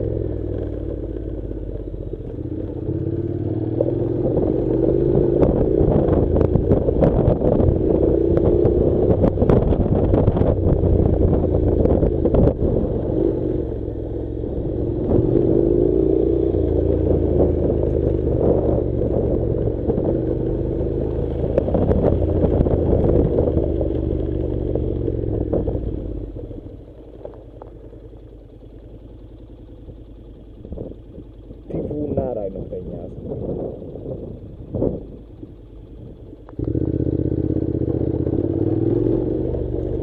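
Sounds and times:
motorcycle engine revving: 0.0 - 40.0
stones crunching under tyres: 21.3 - 30.1.

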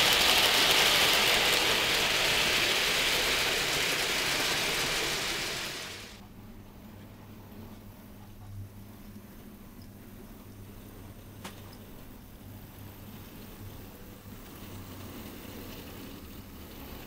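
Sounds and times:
model train wheels rattling on rails: 0.0 - 6.2, 13.1 - 17.0.

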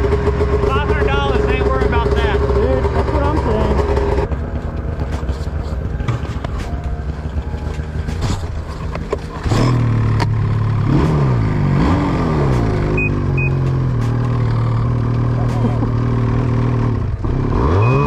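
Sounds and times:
snowmobile engine running: 0.0 - 18.0
short high beeps: 13.0 - 13.6, 17.8 - 18.0.

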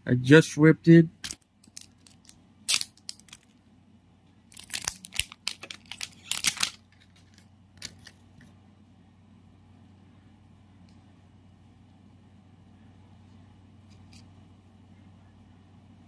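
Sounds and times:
plastic wrapping tearing and crinkling: 1.3 - 3.5, 4.5 - 8.1.

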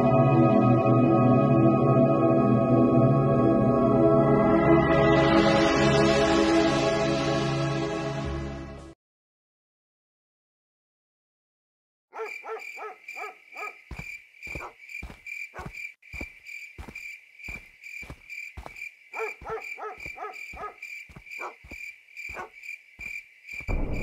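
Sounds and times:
hooting calls: 12.2 - 15.9, 18.6 - 22.7
crickets chirping: 12.2 - 24.0
footsteps on a dirt path: 13.2 - 23.8.

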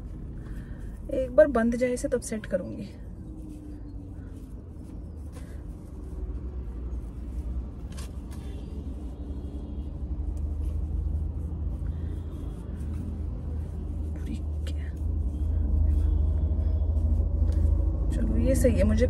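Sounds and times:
car idling rumble: 0.0 - 9.0
gauze bandage crackling: 0.0 - 18.1.

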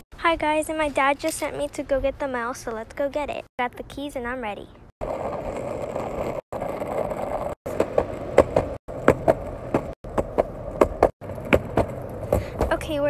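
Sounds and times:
skateboard wheels rolling on pavement: 4.1 - 13.0
wheels clacking over cracks: 5.0 - 13.0.

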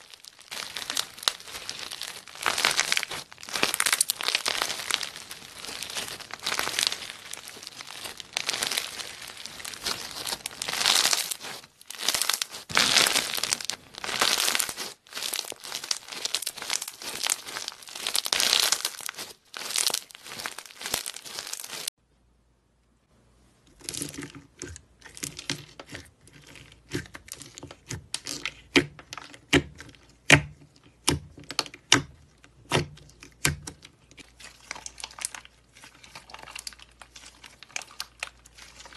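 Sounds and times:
bead slime crackling and crunching: 0.0 - 22.0, 32.7 - 38.9.

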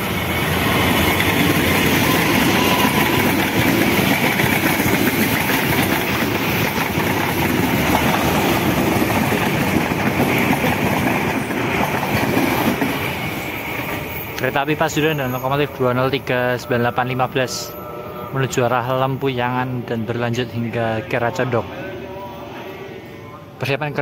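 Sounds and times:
wheel-on-rail noise: 0.0 - 16.3
diesel locomotive passing: 0.0 - 24.0.

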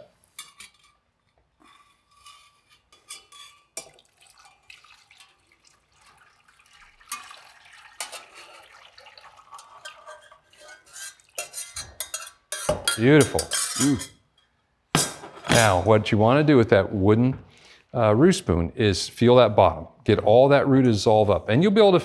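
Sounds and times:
metal pans clinking: 0.0 - 1.0, 1.7 - 5.5, 6.9 - 15.9
liquid splashing as poured: 3.8 - 11.8.

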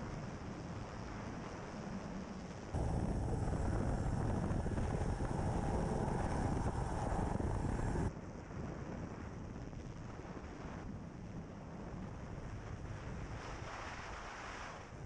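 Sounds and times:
helicopter rotor and engine roar: 2.0 - 8.1
sea rushing: 2.8 - 8.1
wind buffeting: 2.8 - 8.1.

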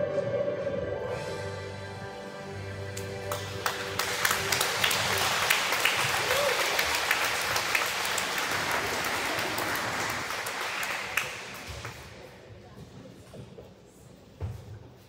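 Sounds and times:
audience clapping: 3.0 - 12.2.

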